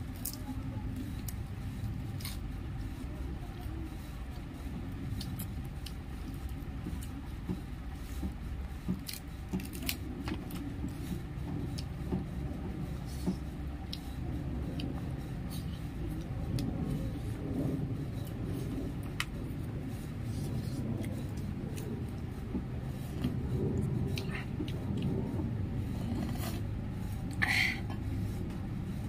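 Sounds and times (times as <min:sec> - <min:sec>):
steady low rumble: 0:00.0 - 0:29.0.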